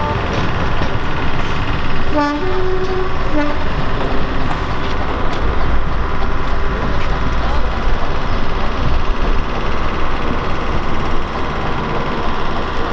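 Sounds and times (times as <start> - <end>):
two-tone train horn: 0.0 - 0.3, 2.1 - 3.8
diesel railcar running: 0.0 - 12.9.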